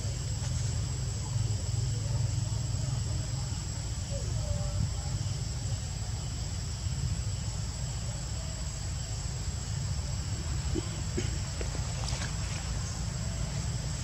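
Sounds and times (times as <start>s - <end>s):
insects chirring in trees: 0.0s - 14.0s
low steady rumble: 0.0s - 14.0s.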